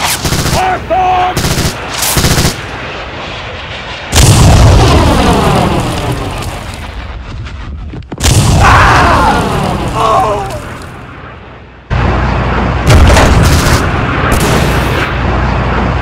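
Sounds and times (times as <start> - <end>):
gunfire bursts: 0.0 - 0.6, 1.4 - 2.6, 12.9 - 15.1
loud explosion: 4.0 - 10.8, 12.0 - 15.4.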